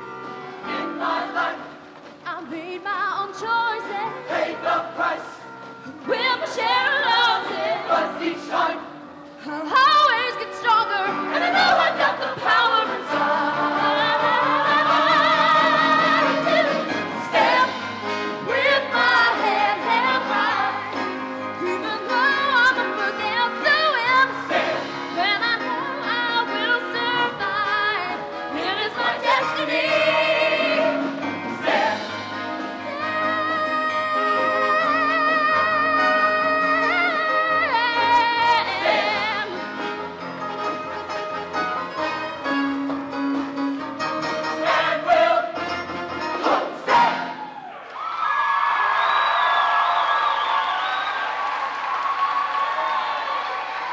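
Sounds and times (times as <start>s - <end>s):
musical accompaniment: 0.0s - 47.7s
choir singing: 0.6s - 1.9s, 3.9s - 5.6s, 6.2s - 9.1s, 10.9s - 25.7s, 27.2s - 40.0s, 44.4s - 47.5s.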